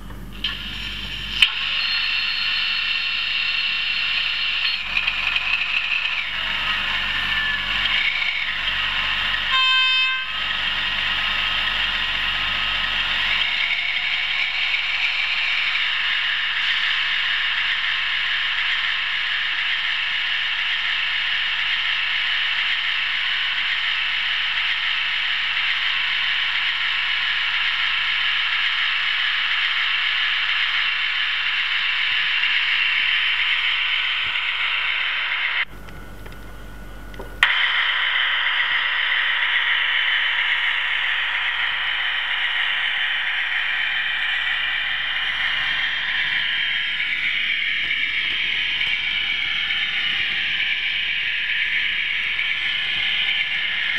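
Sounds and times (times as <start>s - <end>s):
model train running on track: 0.0s - 53.9s.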